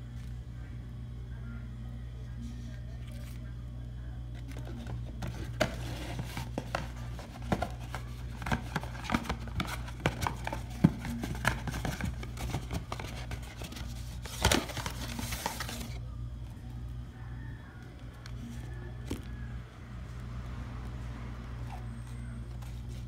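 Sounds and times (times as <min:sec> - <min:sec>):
steady low hum: 0:00.0 - 0:23.0
paper and cardboard crinkling: 0:04.4 - 0:16.0.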